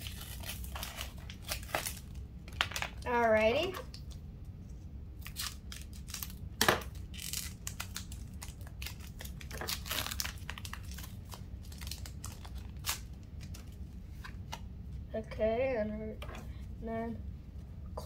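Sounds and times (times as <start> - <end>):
scissors cutting foil wrapper: 0.0 - 3.1, 5.2 - 13.1
foil wrapper crinkling: 0.0 - 3.3, 5.2 - 13.8.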